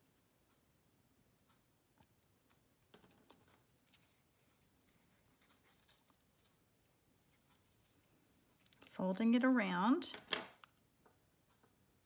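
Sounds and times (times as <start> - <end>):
paper clicks and rustles: 3.0 - 6.6.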